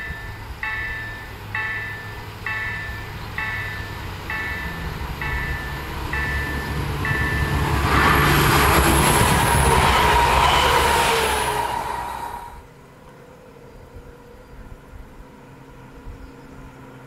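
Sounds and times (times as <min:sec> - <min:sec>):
level crossing signal beeping: 0:00.0 - 0:08.3
train wheels ringing on rails: 0:00.0 - 0:12.4
train passing rumbling: 0:00.0 - 0:17.0.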